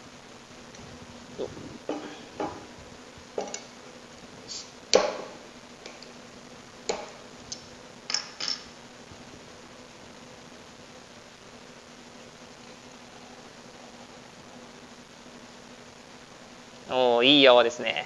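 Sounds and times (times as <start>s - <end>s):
bottle set down on wooden table: 1.9s - 2.7s.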